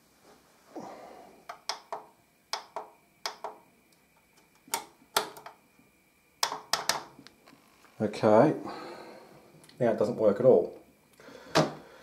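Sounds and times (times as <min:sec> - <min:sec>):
receiver control clicks and taps: 0:01.5 - 0:03.6.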